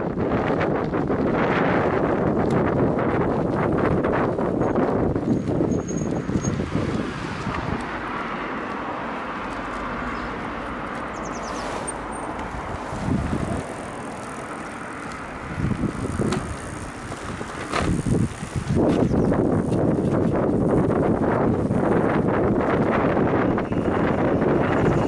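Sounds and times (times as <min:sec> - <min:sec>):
low rumbles: 0:00.0 - 0:25.0
tricycle tyres rolling hiss: 0:00.1 - 0:25.0
car passing: 0:02.9 - 0:19.5.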